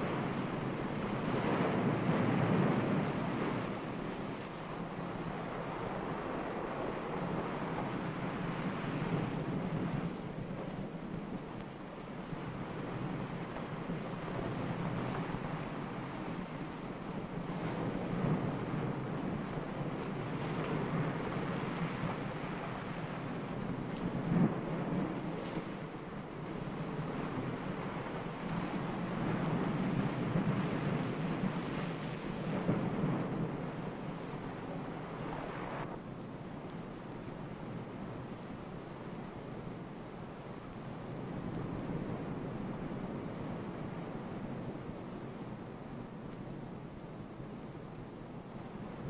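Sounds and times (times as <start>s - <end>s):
steady rushing noise: 0.0s - 49.0s.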